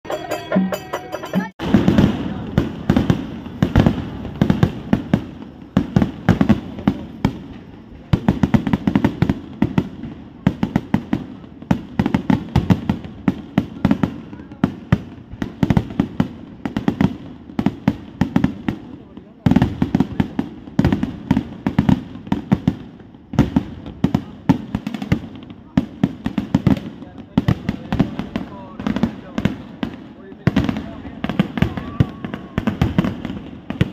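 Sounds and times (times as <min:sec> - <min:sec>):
fireworks barrage of bangs: 0:00.1 - 0:33.9.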